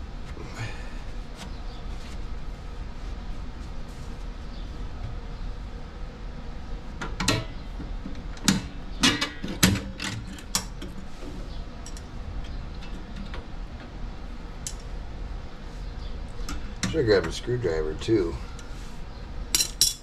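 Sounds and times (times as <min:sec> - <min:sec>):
sharp snaps and clinks: 0:14.6 - 0:14.9, 0:19.5 - 0:20.0.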